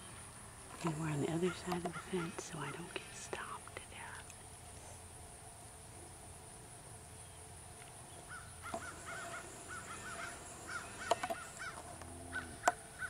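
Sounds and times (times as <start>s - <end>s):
birds calling: 0.8s - 3.6s, 7.2s - 13.0s.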